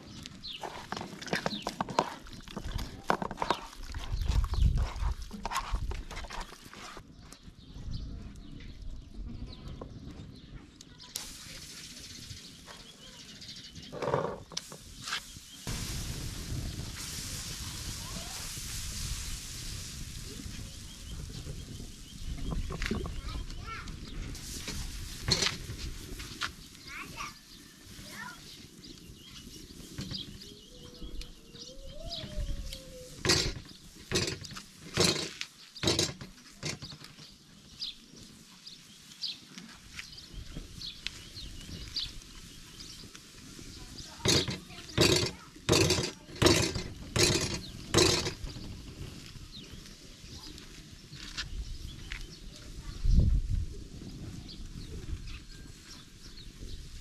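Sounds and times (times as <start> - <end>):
wood fire hissing: 0.0 - 7.0, 11.0 - 57.0
small birds chirping: 0.0 - 57.0
metal spatula scraping griddle: 24.3 - 26.0, 33.1 - 37.0, 44.1 - 48.7.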